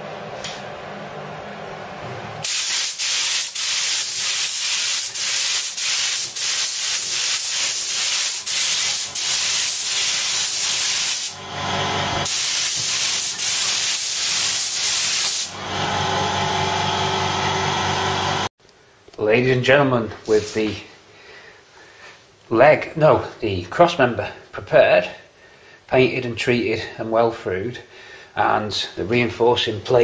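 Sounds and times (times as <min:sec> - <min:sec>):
pressurised spray hissing: 0:02.4 - 0:11.4, 0:12.2 - 0:15.5.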